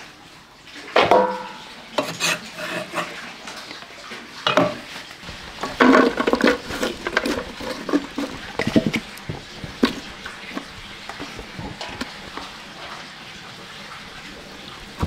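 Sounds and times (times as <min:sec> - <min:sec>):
stalks dropped into metal pot: 0:01.0 - 0:02.2.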